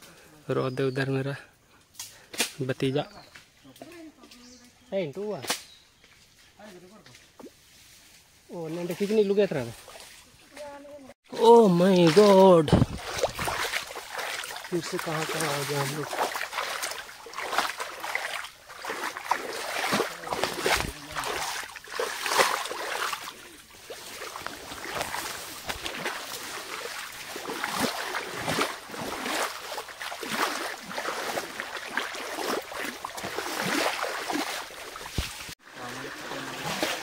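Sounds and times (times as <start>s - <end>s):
leaves and branches rustling: 0.0s - 37.0s
shallow stream running: 7.3s - 37.0s
twigs crackling: 11.5s - 35.6s.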